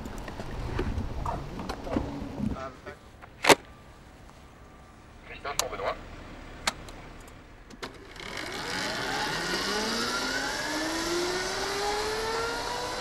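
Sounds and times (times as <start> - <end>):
electric motorcycle motor whine: 7.9 - 13.0.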